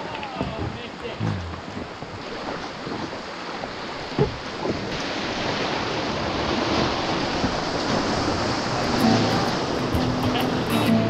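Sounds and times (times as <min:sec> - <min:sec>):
river current rushing: 0:00.0 - 0:11.0
short knock or splash: 0:00.4 - 0:01.9.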